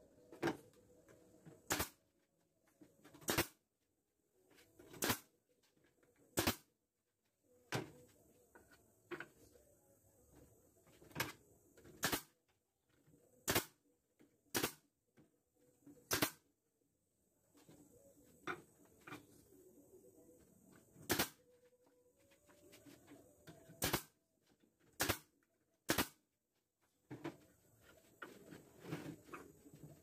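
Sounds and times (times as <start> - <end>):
nail gun firing: 1.6 - 2.0, 3.2 - 3.6, 5.0 - 5.3, 6.4 - 6.7, 12.0 - 12.4, 13.4 - 13.8, 14.5 - 14.9, 16.1 - 16.5, 21.0 - 21.4, 23.8 - 24.2, 25.0 - 25.3, 25.9 - 26.2.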